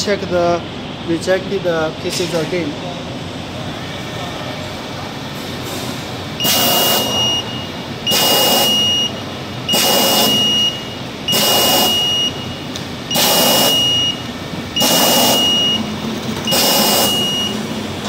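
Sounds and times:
machine running noise: 0:02.6 - 0:18.0
alarm buzzer long beeps: 0:06.4 - 0:15.9, 0:16.5 - 0:17.7.

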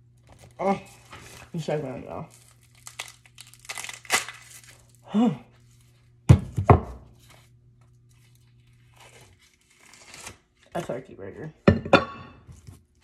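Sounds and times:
steady low hum: 0:00.0 - 0:13.0
person grunting: 0:05.0 - 0:05.5
paper peeling: 0:08.1 - 0:10.7.

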